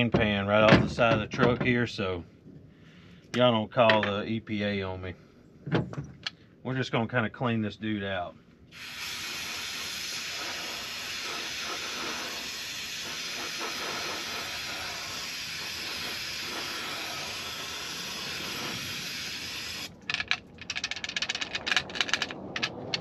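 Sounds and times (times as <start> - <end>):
aerosol spray hissing: 8.8 - 19.9
sharp rattling clicks: 19.8 - 23.0.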